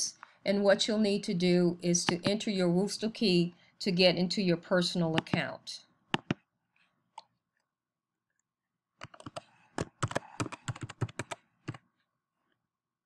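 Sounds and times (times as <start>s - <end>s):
keyboard keys clicking: 6.2s - 6.4s, 9.0s - 11.8s.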